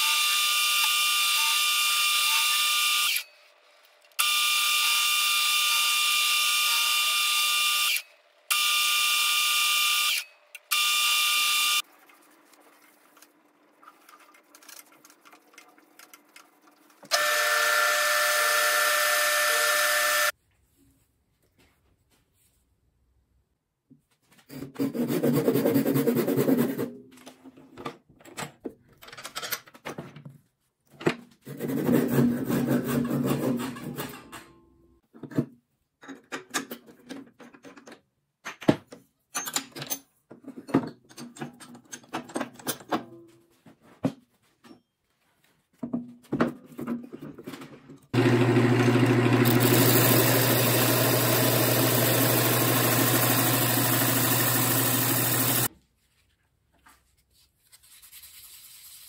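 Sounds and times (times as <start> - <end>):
handsaw cutting wood: 24.7 - 26.8, 31.5 - 33.6, 49.4 - 55.7
clicks and knocks of metal tools: 28.2 - 30.2, 33.7 - 43.2
disc sander motor hum: 48.2 - 55.7
wood sanded against disc: 49.4 - 55.7.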